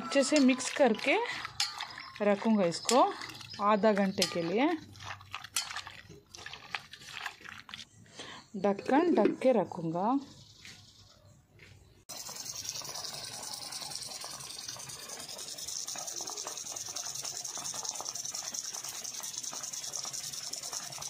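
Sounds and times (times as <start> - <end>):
water jet splashing on plants: 12.1 - 21.0.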